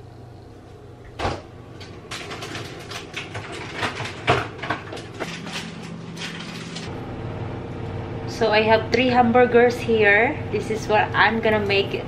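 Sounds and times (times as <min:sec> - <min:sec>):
steady low hum: 0:00.0 - 0:12.0
items clattering on fridge shelves: 0:01.1 - 0:06.9.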